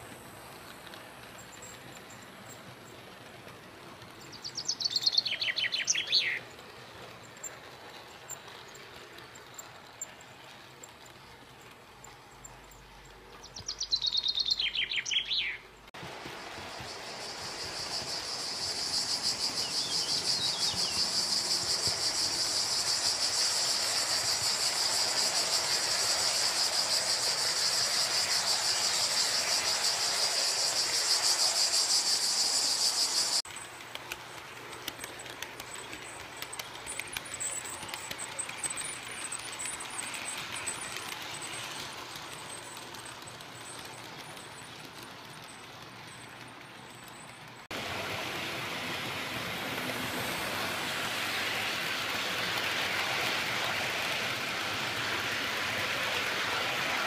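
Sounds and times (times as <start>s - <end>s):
model train running: 0.0s - 57.0s
insects chirring: 16.4s - 34.1s
faint clicks: 33.5s - 47.6s.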